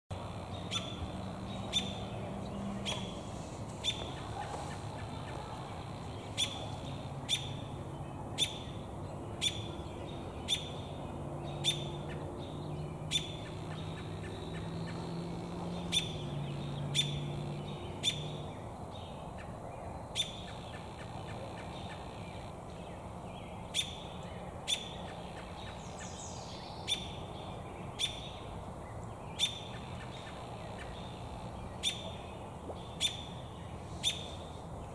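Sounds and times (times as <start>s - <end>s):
robin chirp calls: 0.2s - 7.8s, 8.4s - 18.5s, 29.3s - 32.3s.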